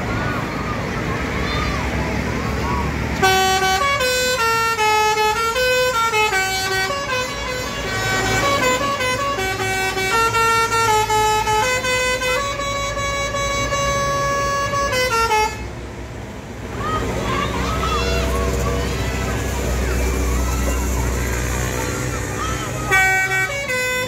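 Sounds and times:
low engine rumble: 0:00.0 - 0:24.0
musical air horn playing a tune: 0:03.2 - 0:15.7, 0:21.2 - 0:24.0.

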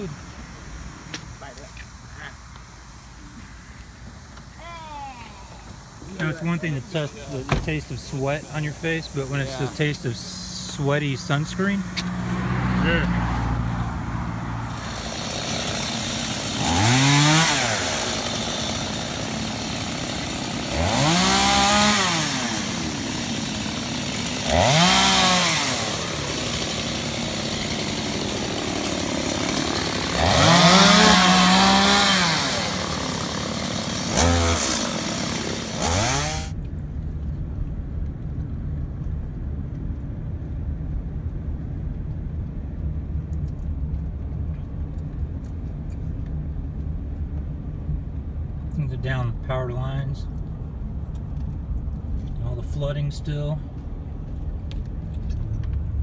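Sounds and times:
chainsaws revving: 0:06.2 - 0:13.4, 0:14.3 - 0:36.6
road rumble inside car: 0:36.5 - 0:56.0.

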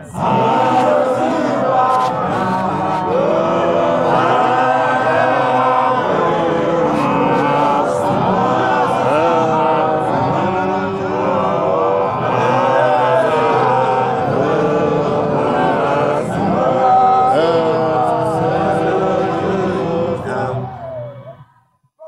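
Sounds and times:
group singing a hymn: 0:00.0 - 0:21.0.

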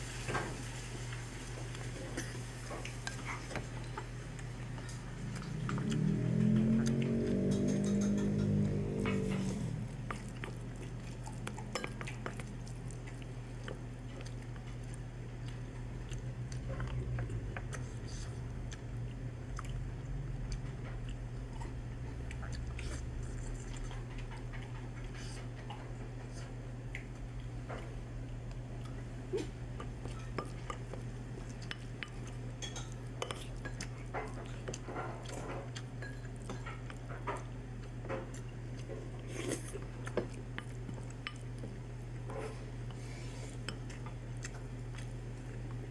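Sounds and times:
low hum: 0:03.8 - 0:14.0.

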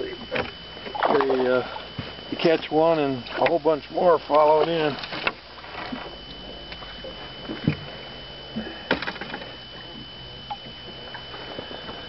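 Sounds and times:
dull thump: 0:07.4 - 0:07.9.

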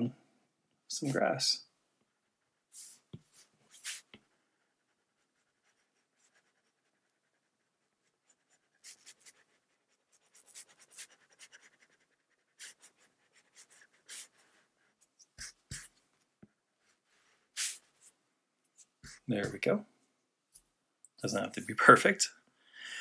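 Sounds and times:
stylus scratching on glass screen: 0:08.2 - 0:16.0.

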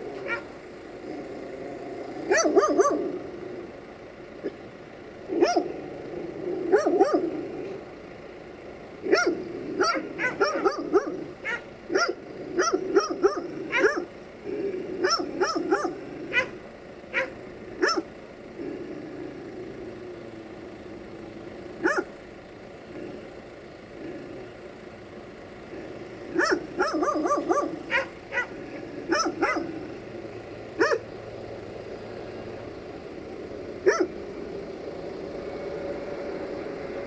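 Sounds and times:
dog barking: 0:00.2 - 0:00.5, 0:02.3 - 0:03.1, 0:05.4 - 0:05.8, 0:06.7 - 0:07.3, 0:09.1 - 0:14.1, 0:15.0 - 0:18.1, 0:21.8 - 0:22.1, 0:26.3 - 0:29.8, 0:30.8 - 0:31.1, 0:33.8 - 0:34.2.

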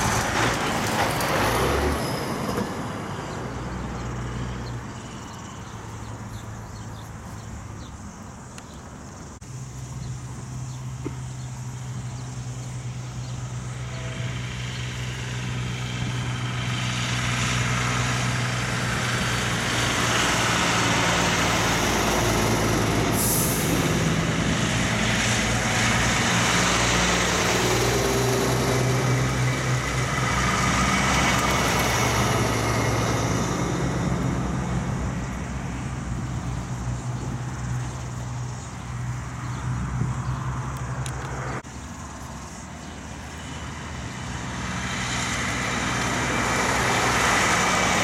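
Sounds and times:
diesel trucks driving past: 0:00.0 - 0:48.0
air hiss: 0:23.0 - 0:24.2.

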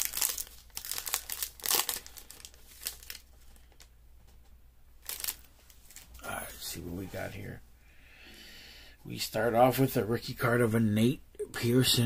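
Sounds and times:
card pack wrapper crinkling: 0:00.0 - 0:03.9, 0:05.0 - 0:06.2.

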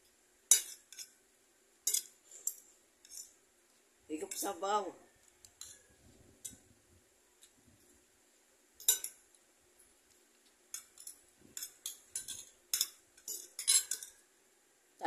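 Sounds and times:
cutlery clinking on a plate: 0:00.5 - 0:01.2, 0:01.8 - 0:03.3, 0:05.6 - 0:06.6, 0:08.8 - 0:09.2, 0:10.7 - 0:14.2.

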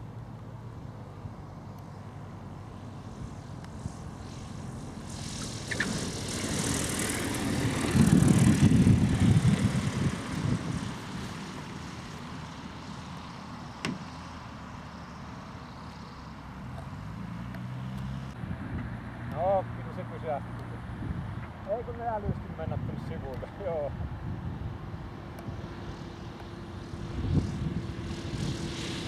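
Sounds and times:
glider wheels and engine rumble: 0:00.0 - 0:23.6.

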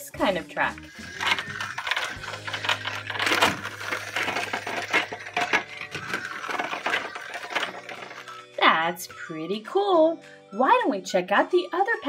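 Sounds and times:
small electric motor humming: 0:00.8 - 0:08.4
plastic wheels clattering on track: 0:00.8 - 0:08.5.

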